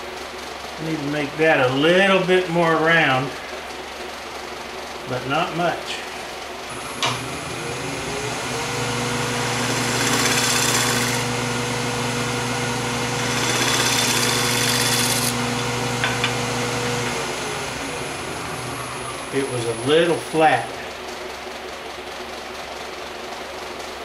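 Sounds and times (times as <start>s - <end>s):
wood lathe motor humming: 6.7s - 20.2s
gouge shaving wood hiss: 9.4s - 11.3s, 13.0s - 15.4s.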